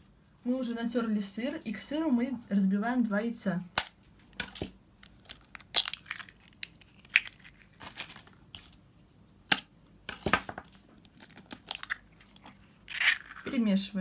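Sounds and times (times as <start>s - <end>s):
eggshells cracking: 5.0s - 8.7s, 9.5s - 13.5s.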